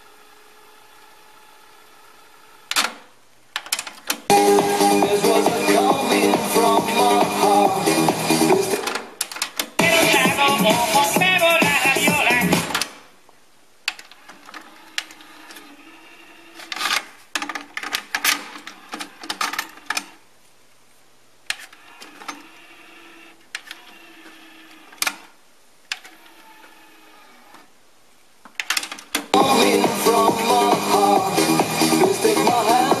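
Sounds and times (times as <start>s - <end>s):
cassette deck mechanism whirring: 2.6s - 10.2s, 12.0s - 13.1s, 13.9s - 20.2s, 21.5s - 27.8s, 28.5s - 33.0s.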